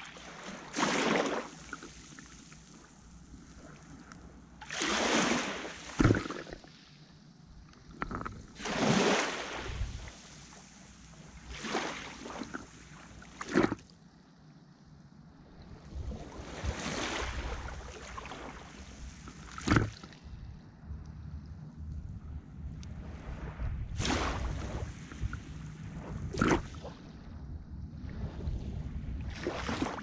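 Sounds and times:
small sea waves washing in: 0:00.0 - 0:07.1, 0:08.2 - 0:13.9, 0:15.7 - 0:20.5, 0:22.3 - 0:27.4, 0:28.0 - 0:30.0
water slaps: 0:04.6 - 0:06.6, 0:19.5 - 0:20.2, 0:26.3 - 0:26.8.

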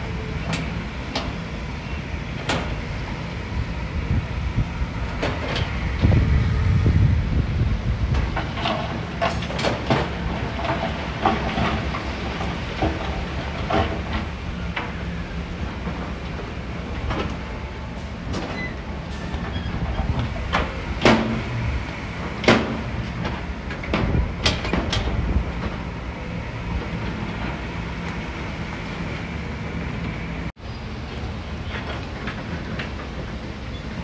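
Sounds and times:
metal clanks and knocks: 0:22.3 - 0:25.8.

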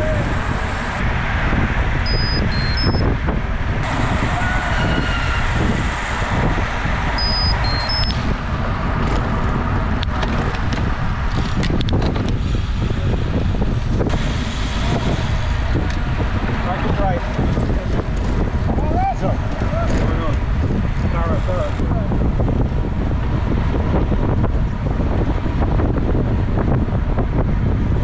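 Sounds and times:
tyre and road noise: 0:00.0 - 0:28.0
wind noise on microphone: 0:00.0 - 0:28.0
high electronic beeps: 0:02.1 - 0:03.0, 0:07.2 - 0:08.2.

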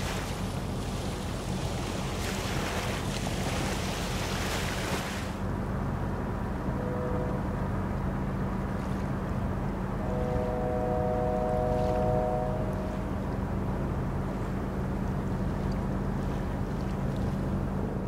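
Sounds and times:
diesel engines humming: 0:05.4 - 0:18.0
faint steady tones: 0:09.9 - 0:14.5.

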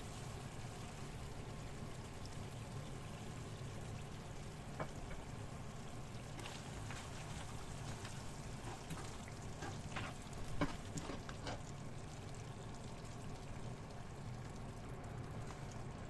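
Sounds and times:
chicken frying in a pan: 0:00.0 - 0:16.0
spoon scraping a pan: 0:08.7 - 0:11.7.

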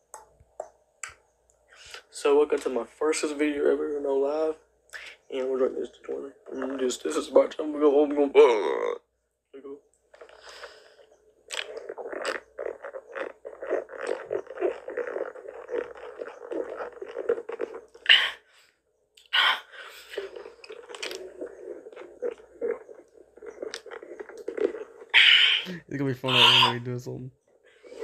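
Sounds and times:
drink slurping through a straw: 0:10.1 - 0:18.7, 0:19.3 - 0:26.9, 0:27.7 - 0:28.0.

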